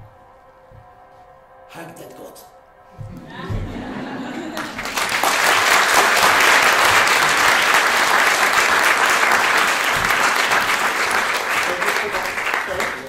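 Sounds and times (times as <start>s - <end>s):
audience applauding: 3.7s - 13.0s.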